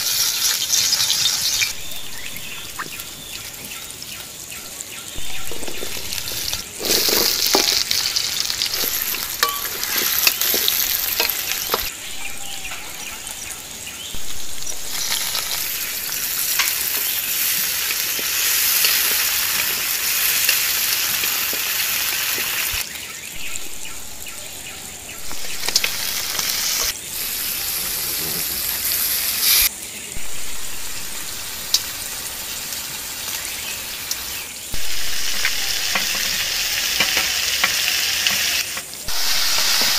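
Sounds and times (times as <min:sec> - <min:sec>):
food sizzling in hot oil: 0:00.0 - 0:39.9
spatula scraping metal wok: 0:05.4 - 0:11.9.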